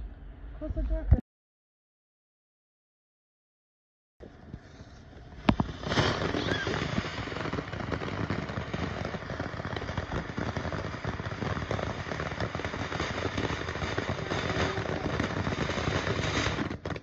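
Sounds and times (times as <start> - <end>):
firework fountain hissing and crackling: 4.2 - 17.0.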